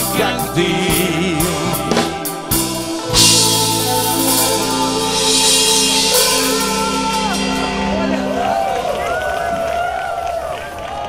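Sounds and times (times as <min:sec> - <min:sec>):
pop band music: 0:00.0 - 0:10.2
loud cymbal crash: 0:02.3 - 0:09.2.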